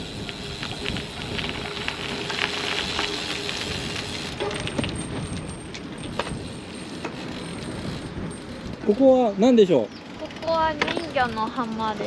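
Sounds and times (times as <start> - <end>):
wind rumbling on microphone: 0.0 - 9.3
bike tyres rolling on pebbles: 0.0 - 12.0.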